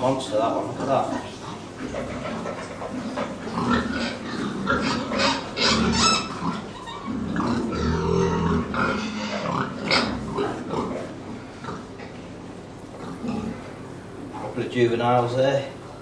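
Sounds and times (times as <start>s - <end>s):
pigs squealing: 0.0s - 12.2s, 13.0s - 14.5s
pigs grunting: 0.0s - 14.6s.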